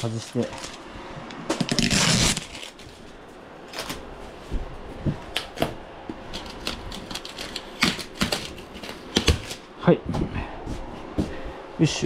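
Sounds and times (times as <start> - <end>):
packing material rustling: 0.0 - 0.9, 1.5 - 4.3, 6.2 - 9.7.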